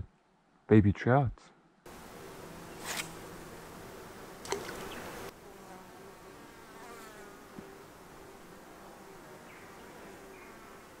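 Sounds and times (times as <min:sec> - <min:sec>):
flying insects buzzing: 0:01.9 - 0:11.0.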